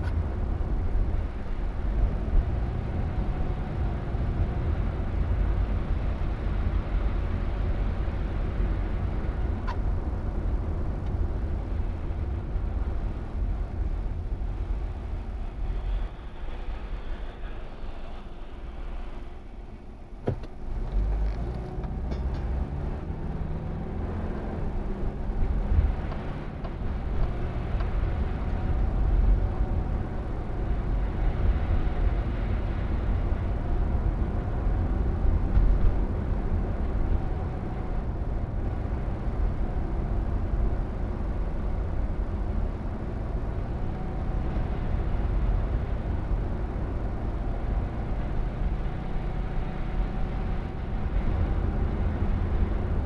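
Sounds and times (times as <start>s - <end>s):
car engine and road noise: 0.0s - 53.0s.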